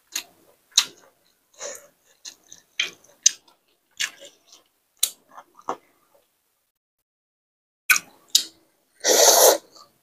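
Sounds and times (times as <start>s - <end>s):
slurping noodles: 9.0s - 9.8s.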